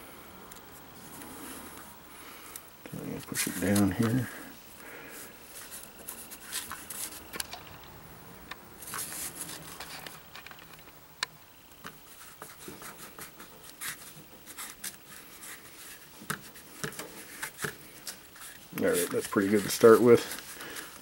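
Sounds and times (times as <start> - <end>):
fingertips rubbing plastic film: 12.1 - 21.0.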